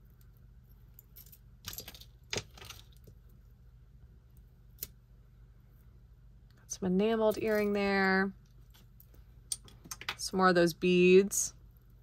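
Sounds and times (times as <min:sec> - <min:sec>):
metal jewelry clinking: 0:00.8 - 0:03.1, 0:07.2 - 0:07.9.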